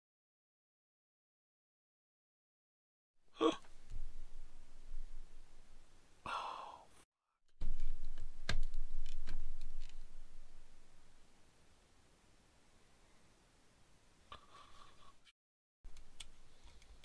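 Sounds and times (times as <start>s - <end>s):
man sighing: 3.4s - 3.7s, 6.2s - 7.0s
heavy breathing: 6.2s - 7.0s.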